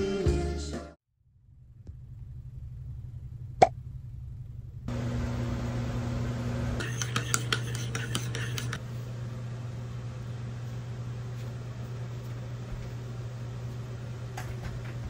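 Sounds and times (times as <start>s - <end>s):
low hum: 1.1s - 6.8s.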